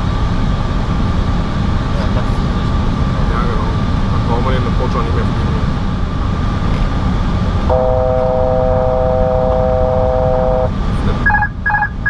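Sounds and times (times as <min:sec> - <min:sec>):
engine and airflow rush: 0:00.0 - 0:12.0
three-note chord alert: 0:07.7 - 0:10.7
short repeated beeps: 0:11.3 - 0:12.0.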